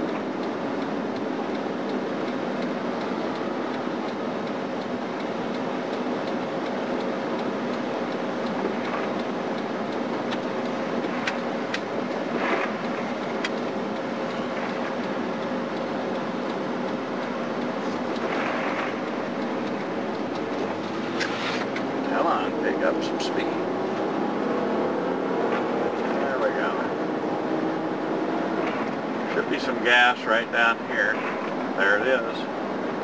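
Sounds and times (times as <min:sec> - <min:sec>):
faint ticks: 0:00.0 - 0:21.9
car cabin road noise: 0:00.0 - 0:33.0.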